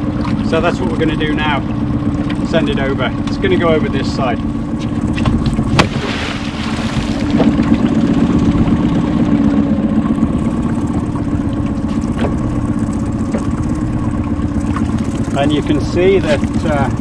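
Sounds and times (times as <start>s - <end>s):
boat engine idling: 0.0s - 17.0s
trap splashing into water: 5.7s - 7.6s.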